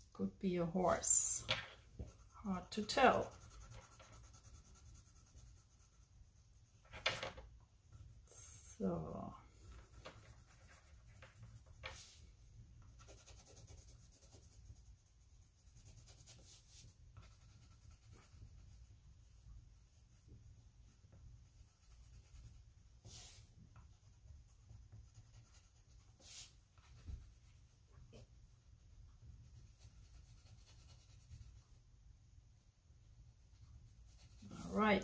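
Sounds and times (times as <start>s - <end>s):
pen scratching on paper: 2.0s - 6.1s, 9.6s - 12.2s, 12.8s - 18.8s, 21.4s - 28.2s, 29.4s - 31.7s, 33.6s - 35.0s.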